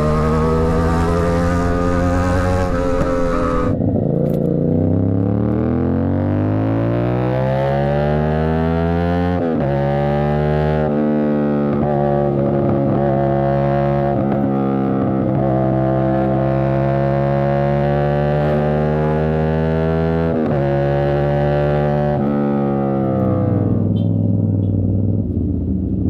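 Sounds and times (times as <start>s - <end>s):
motorcycle engine accelerating: 0.0s - 26.0s.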